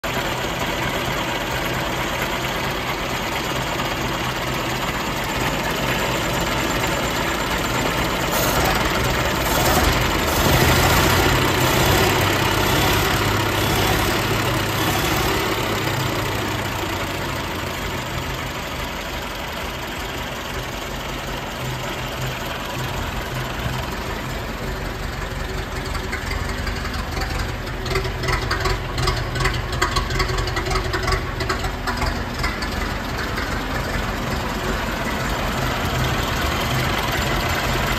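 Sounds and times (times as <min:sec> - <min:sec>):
car engine idling: 0:00.0 - 0:37.9.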